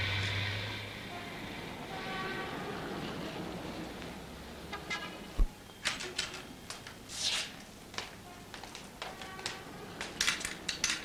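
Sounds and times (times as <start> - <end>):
brief rustle: 5.9 - 7.7.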